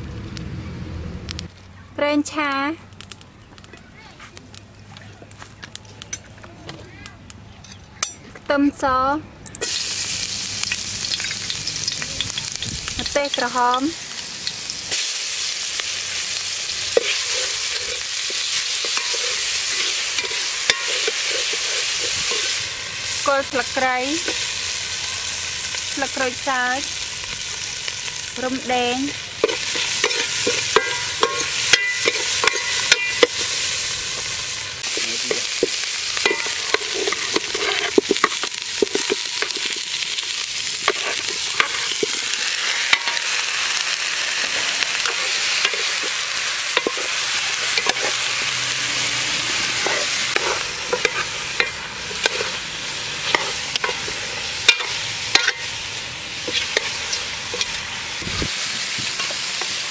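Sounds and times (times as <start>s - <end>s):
paste sizzling in a pot: 9.6s - 59.9s
metal ladle scraping and clinking: 16.9s - 22.6s, 29.4s - 34.3s, 34.9s - 43.4s, 45.0s - 48.3s, 49.4s - 52.6s, 53.2s - 55.8s, 56.4s - 57.9s.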